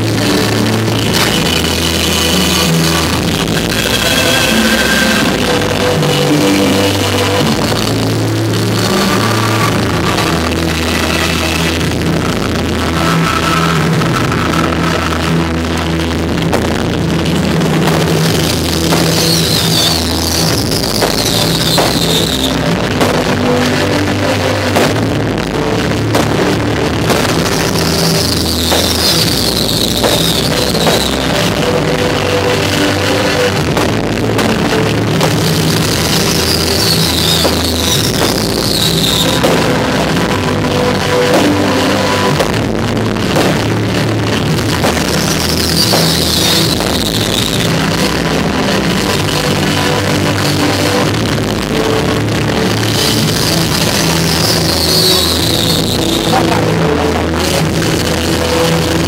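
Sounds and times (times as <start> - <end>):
fireworks bangs: 0.0 - 59.0
loud rock music: 0.0 - 59.0.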